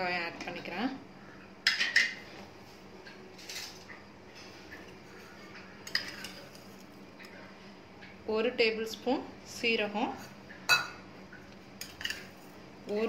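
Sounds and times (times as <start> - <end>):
steel kitchenware clinking: 4.8 - 6.7, 11.8 - 12.3.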